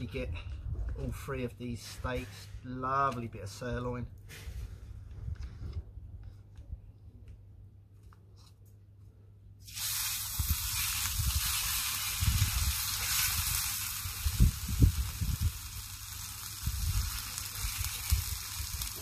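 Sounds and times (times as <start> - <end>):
steak sizzling in a pan: 9.6 - 19.0.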